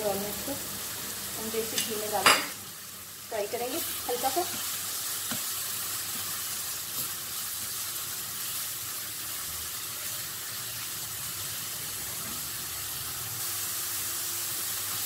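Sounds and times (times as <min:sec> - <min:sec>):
food sizzling in a wok: 0:00.0 - 0:15.0.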